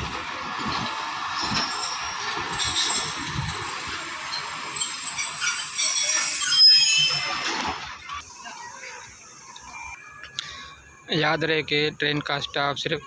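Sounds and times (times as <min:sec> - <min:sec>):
faint high squeaks: 0:04.3 - 0:07.9.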